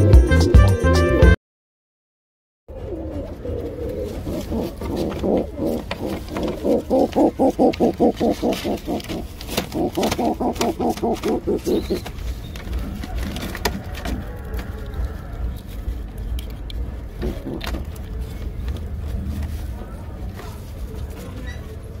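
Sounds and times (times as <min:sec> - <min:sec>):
pigeon rapid low pulsed calls: 0:02.7 - 0:13.0.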